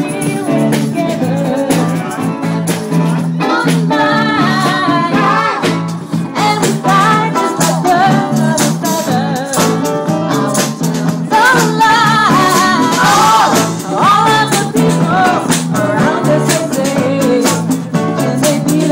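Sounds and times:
bass line: 0.0s - 18.9s
drum kit: 0.0s - 18.9s
keyboard: 0.0s - 18.9s
women singing into microphones: 0.0s - 18.9s.

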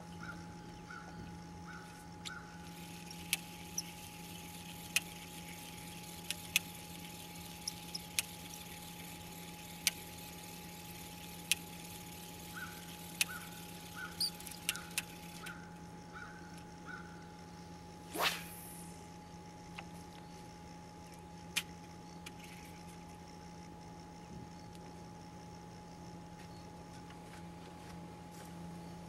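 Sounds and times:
steady low hum: 0.0s - 29.0s
fishing reel chirps: 1.0s - 24.2s
fishing reel clicking: 2.2s - 15.7s.

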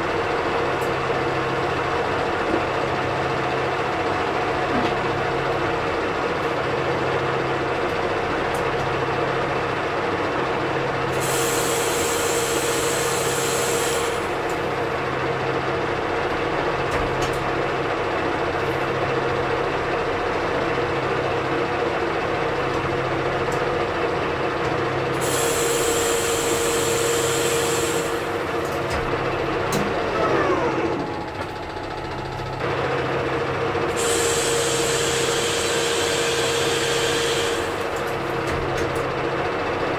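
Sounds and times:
metal lathe gear whine: 11.1s - 15.1s, 25.0s - 38.4s
cutting tool hiss: 11.2s - 14.4s, 25.2s - 28.3s, 33.9s - 37.9s.

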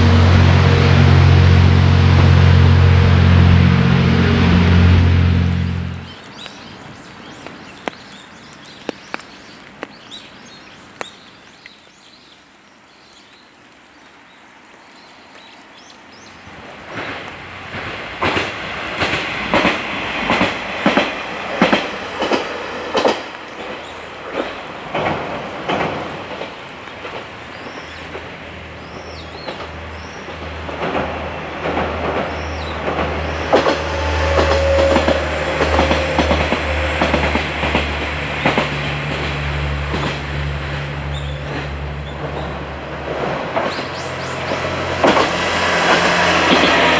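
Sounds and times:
low train drive hum: 0.0s - 6.2s, 16.5s - 46.9s
train wheels clacking over rail joints: 16.9s - 28.4s, 29.0s - 46.9s.

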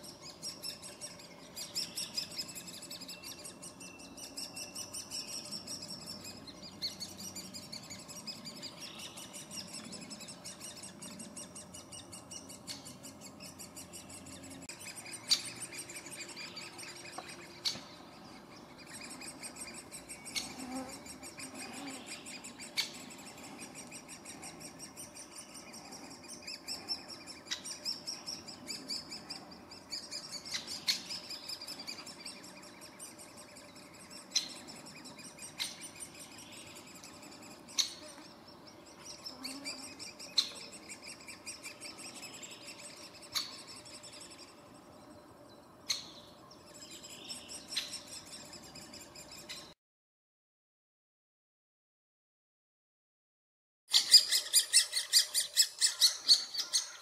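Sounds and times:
woodpecker nestlings chattering: 53.9s - 57.0s.

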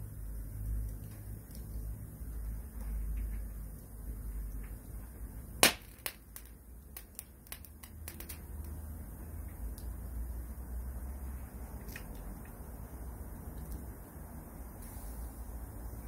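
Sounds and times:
fire crackling: 0.0s - 16.0s
low steady rumble: 0.0s - 16.0s
sharp pop of burning log: 5.6s - 8.4s.

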